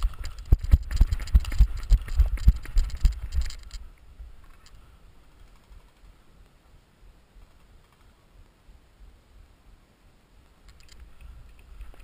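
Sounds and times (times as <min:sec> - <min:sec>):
running footsteps on gravel: 0:00.0 - 0:03.8
rifle and gear rattling: 0:00.0 - 0:06.2.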